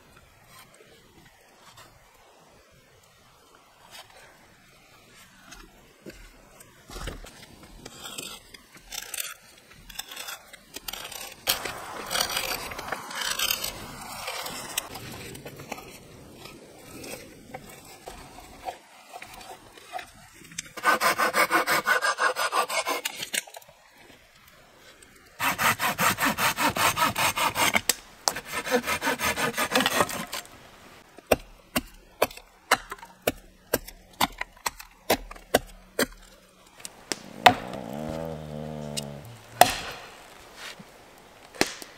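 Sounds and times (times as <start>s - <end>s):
hand saw cutting wood: 10.0s - 15.0s, 20.7s - 23.5s, 25.4s - 30.5s, 31.3s - 40.8s
sharp knocks of wood: 37.1s - 38.2s, 39.5s - 40.1s.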